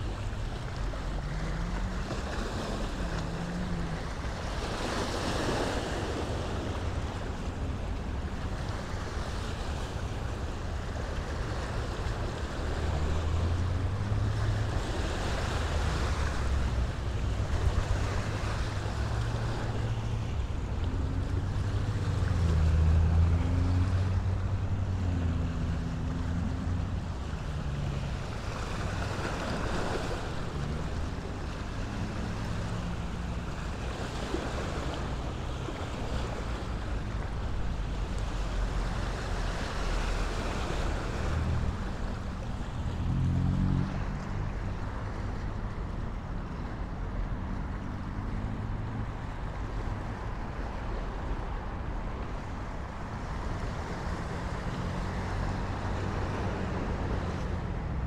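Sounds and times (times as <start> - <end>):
drone of passing traffic: 0.0 - 58.0
water along the shore: 0.0 - 58.0
wind: 0.0 - 58.0.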